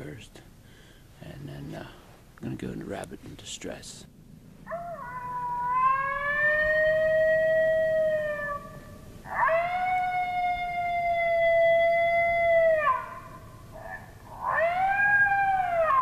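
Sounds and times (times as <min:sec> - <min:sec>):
coyote howls from electronic call: 0:04.6 - 0:16.0.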